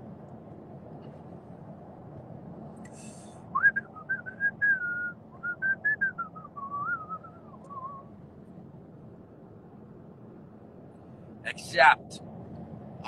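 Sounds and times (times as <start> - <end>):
low road noise inside car: 0.0 - 13.0
person whistling a tune: 3.5 - 8.0.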